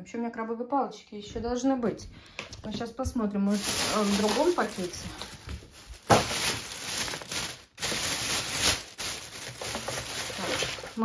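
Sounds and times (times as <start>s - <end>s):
plastic bags rustling: 2.7s - 11.0s.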